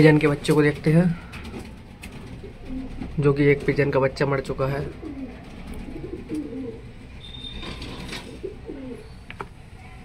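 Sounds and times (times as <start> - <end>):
pigeons cooing: 4.8 - 9.3.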